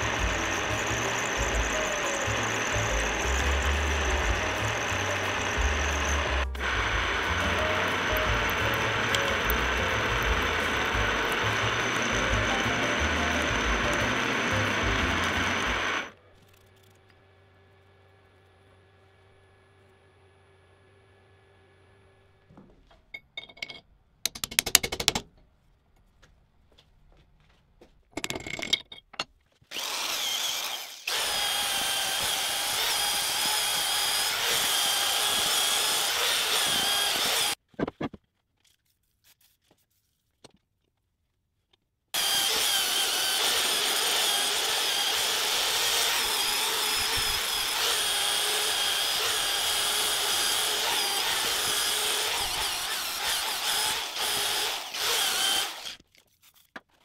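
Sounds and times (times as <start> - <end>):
handheld power tool running: 0.0 - 17.1, 29.7 - 37.6, 42.2 - 56.0.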